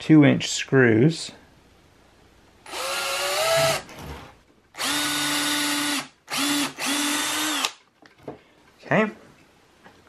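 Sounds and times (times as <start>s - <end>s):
cordless drill boring into wood: 2.7s - 3.8s, 4.8s - 7.8s.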